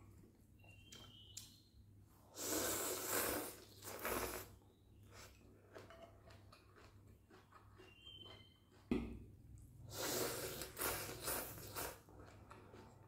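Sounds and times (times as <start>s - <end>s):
person slurping noodles: 2.3s - 4.6s, 9.9s - 12.1s.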